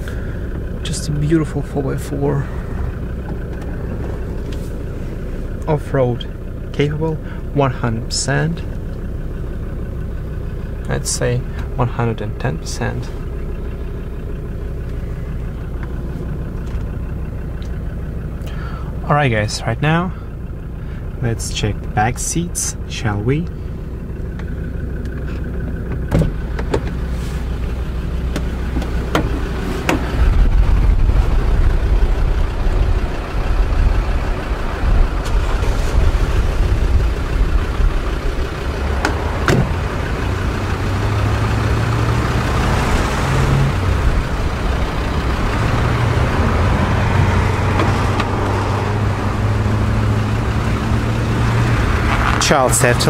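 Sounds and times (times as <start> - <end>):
low rumble: 0.0 - 21.9, 22.8 - 53.0
car door handles and latches clicking: 28.3 - 30.1, 39.0 - 39.7, 47.8 - 48.4.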